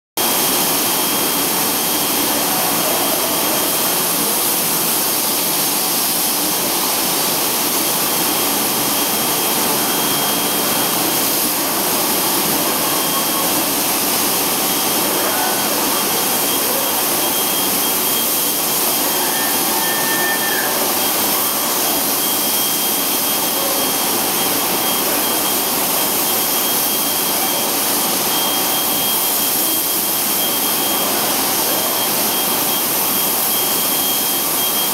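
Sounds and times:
spray booth rushing hiss: 0.2 - 34.9
thin high whistle: 8.1 - 11.6, 12.4 - 13.9, 14.7 - 34.9.

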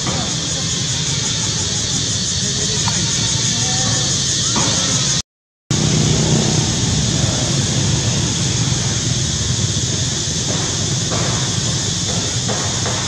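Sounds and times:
continuous hiss: 0.0 - 5.2.

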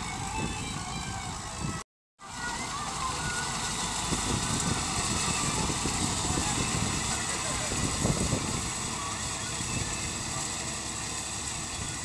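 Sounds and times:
tractor engine running: 0.0 - 12.0
steady rushing noise: 2.4 - 12.0.

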